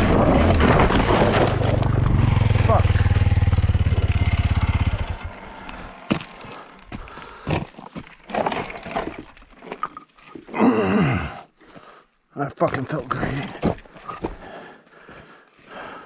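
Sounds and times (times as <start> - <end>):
motorcycle engine running: 1.5 - 7.4.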